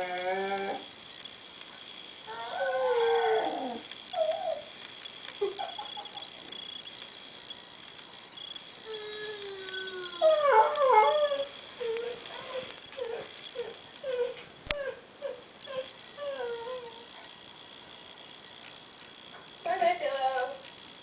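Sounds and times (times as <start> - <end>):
dog howling and whining: 0.0 - 0.9, 2.2 - 4.7, 8.8 - 17.3.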